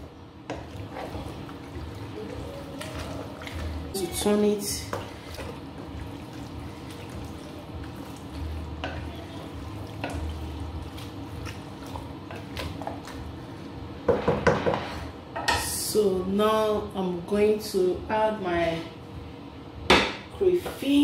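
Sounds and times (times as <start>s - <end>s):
liquid sloshing in pot: 0.0s - 15.1s.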